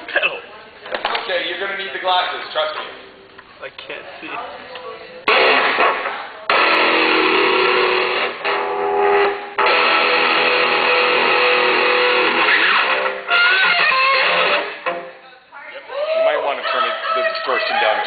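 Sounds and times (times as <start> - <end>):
distorted electric guitar chords: 5.3 - 15.2.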